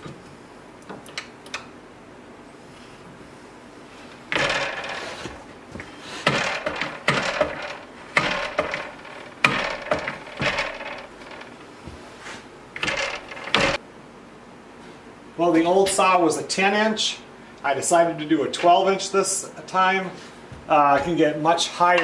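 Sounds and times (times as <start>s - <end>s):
metal parts scraping and clunking: 4.3s - 13.8s.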